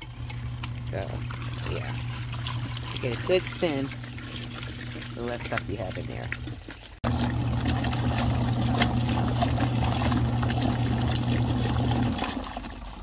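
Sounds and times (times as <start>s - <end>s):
washing machine motor hum: 0.0s - 13.0s
water swishing in tub: 0.0s - 13.0s.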